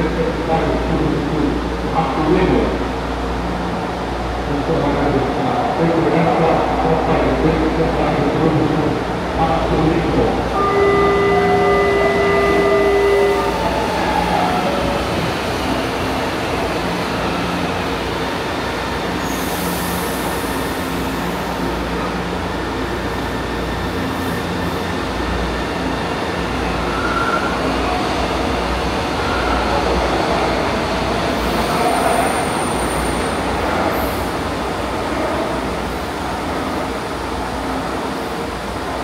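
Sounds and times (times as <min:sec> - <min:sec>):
train rolling rumble: 0:00.0 - 0:39.0
high wheel squeal: 0:26.9 - 0:27.7.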